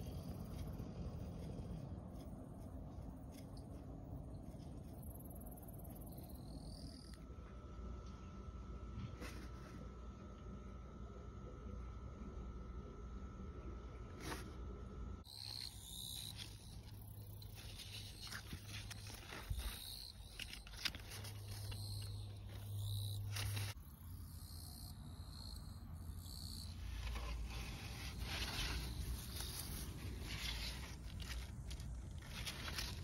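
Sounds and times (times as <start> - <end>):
low hum: 0.0 - 33.0
insects calling: 4.8 - 7.2, 15.2 - 33.0.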